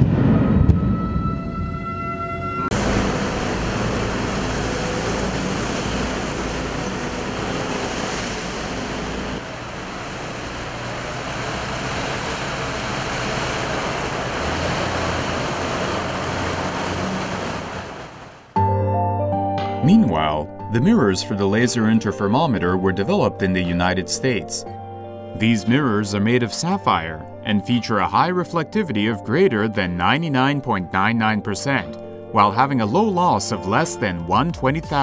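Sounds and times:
heavy machinery roar: 0:00.0 - 0:18.6
low engine hum: 0:02.7 - 0:18.6.

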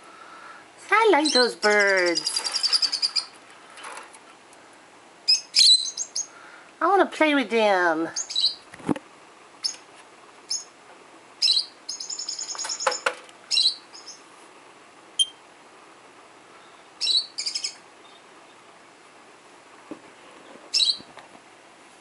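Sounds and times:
lovebird chirping: 0:01.2 - 0:03.3, 0:05.3 - 0:06.3, 0:08.2 - 0:08.6, 0:10.5 - 0:10.7, 0:11.4 - 0:14.2, 0:15.2 - 0:15.4, 0:16.6 - 0:18.7, 0:20.7 - 0:21.0.

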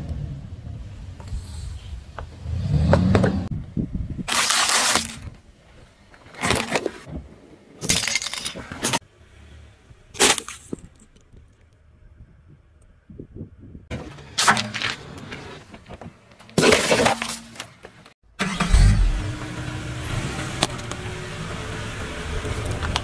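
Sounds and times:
plastic crunching under a tyre: 0:04.3 - 0:05.4
tyre rumbling on asphalt: 0:20.5 - 0:23.0.

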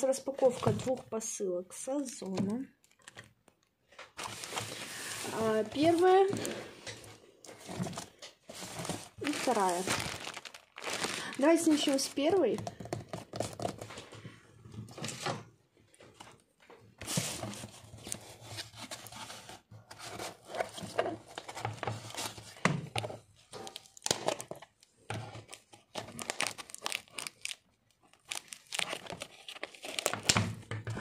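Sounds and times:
plastic wrap crinkling and tearing: 0:02.8 - 0:03.3, 0:04.2 - 0:14.0, 0:23.4 - 0:30.6
plastic wrap being slit: 0:09.2 - 0:12.0.

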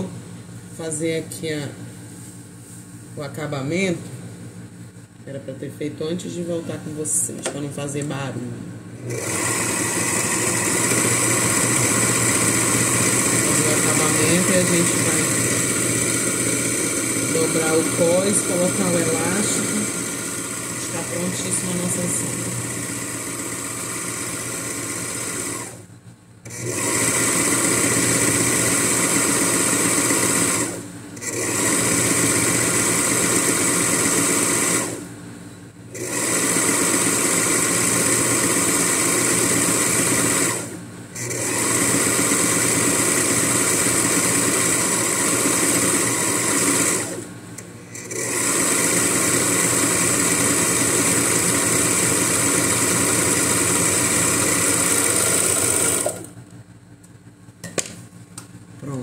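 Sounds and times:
sewing machine stitching: 0:09.0 - 0:25.8, 0:26.5 - 0:35.0, 0:35.9 - 0:47.3, 0:47.9 - 0:56.4.

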